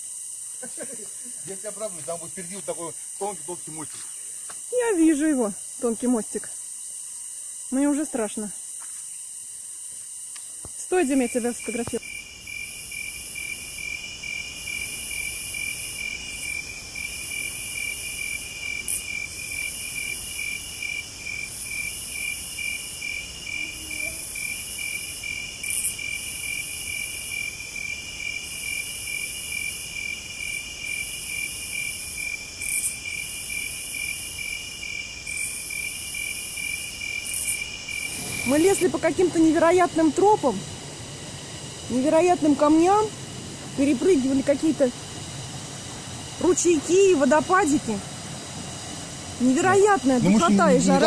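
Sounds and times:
cicadas buzzing: 0:00.0 - 0:51.0
insects trilling: 0:00.0 - 0:51.0.

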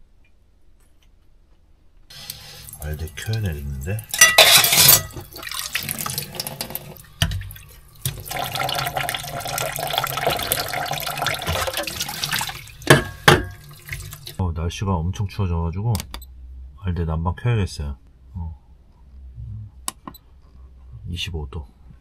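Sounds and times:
cookware knocking: 0:04.1 - 0:05.4, 0:12.8 - 0:13.6
tap running into sink: 0:05.1 - 0:14.4.

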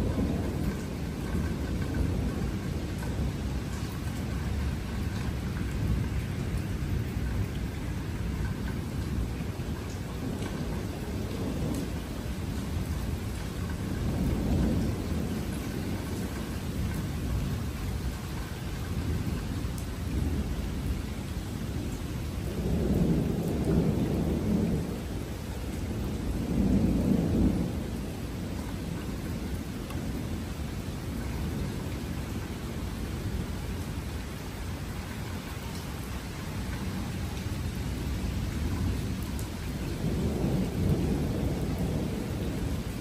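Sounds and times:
rain hiss: 0:00.0 - 0:43.0
thunder rumbling: 0:00.0 - 0:43.0.

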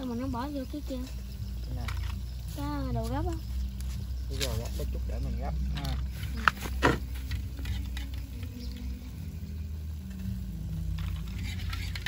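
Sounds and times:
low outdoor rumble: 0:00.0 - 0:12.0
snail shells clicking: 0:01.4 - 0:02.5.

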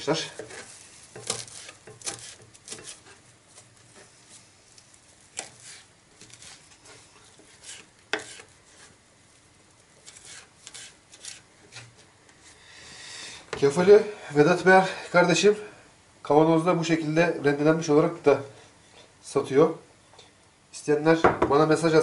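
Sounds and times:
knife chopping on plastic board: 0:07.6 - 0:08.4.

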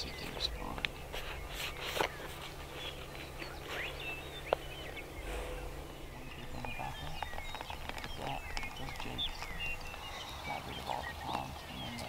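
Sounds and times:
low background rumble: 0:00.0 - 0:12.0
small birds chirping: 0:00.0 - 0:12.0.

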